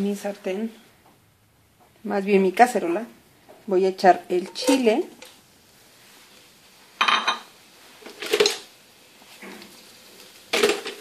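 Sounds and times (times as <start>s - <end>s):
utensil scraping cooking pot: 4.3s - 5.3s.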